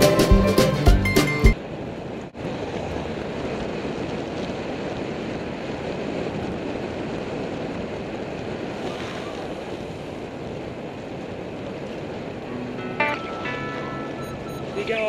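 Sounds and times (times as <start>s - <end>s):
wind rush on microphone: 1.6s - 12.6s.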